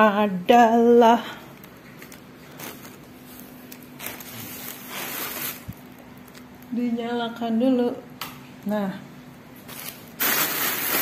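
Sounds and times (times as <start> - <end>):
plastic bag rustling: 1.5 - 6.8, 9.6 - 11.0.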